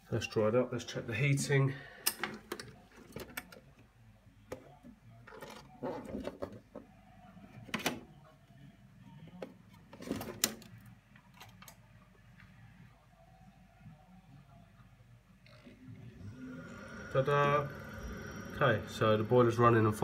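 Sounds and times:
boiler humming: 0:16.0 - 0:20.0.

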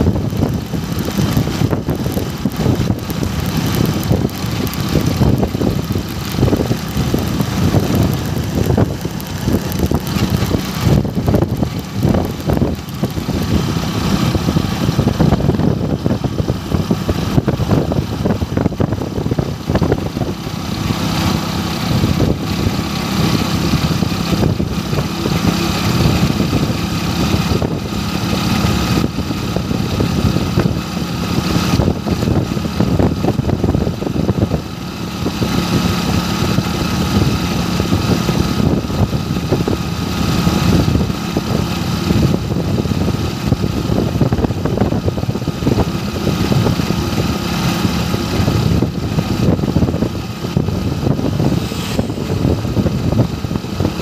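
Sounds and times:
motorbike engine running: 0:00.0 - 0:54.0
road noise: 0:00.0 - 0:54.0
wind rushing over microphone: 0:00.0 - 0:54.0.

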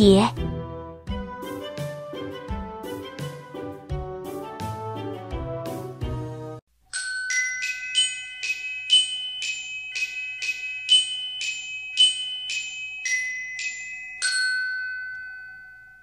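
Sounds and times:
glockenspiel logo jingle: 0:06.9 - 0:16.0.

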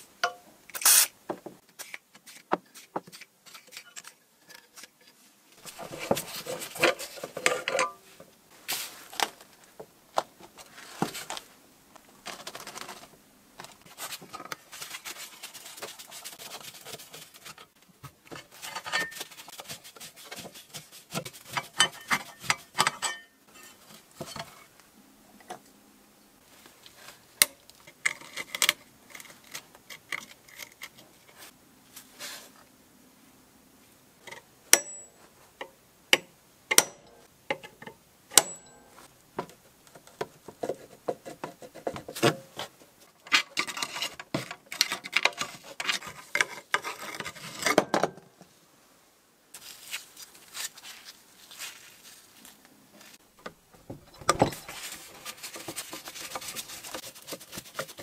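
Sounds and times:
tools scraping metal: 0:05.6 - 0:08.2, 0:18.5 - 0:24.7, 0:43.2 - 0:48.0.

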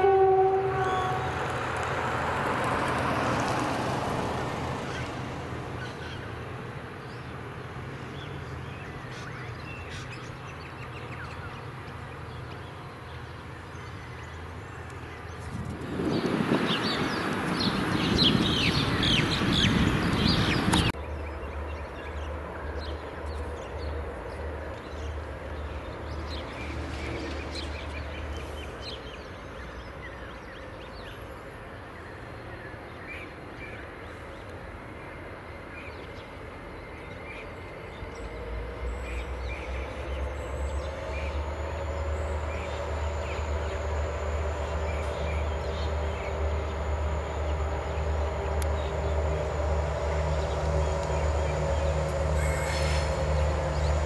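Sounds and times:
diesel locomotive rumble: 0:37.7 - 0:54.0
birds chirping: 0:39.0 - 0:54.0.

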